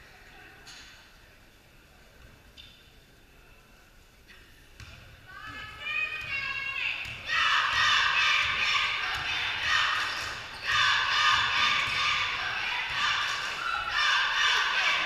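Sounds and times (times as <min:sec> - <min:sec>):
spectators shouting and cheering: 0:07.2 - 0:15.0.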